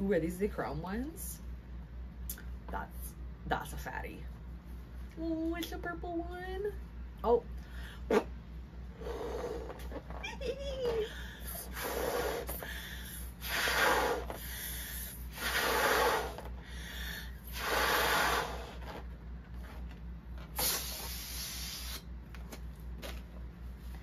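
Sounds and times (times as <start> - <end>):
breaths blowing up a balloon: 8.9 - 10.0, 11.0 - 19.1, 20.5 - 22.1
latex balloons rustling: 17.5 - 24.0.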